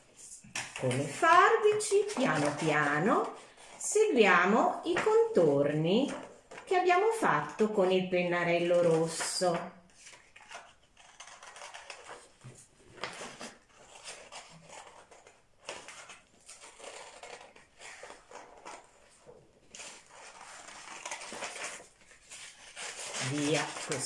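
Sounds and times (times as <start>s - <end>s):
paper rustling: 0.0s - 6.8s, 8.6s - 24.0s
scissors snipping paper: 0.6s - 3.4s, 8.6s - 12.4s, 13.0s - 24.0s.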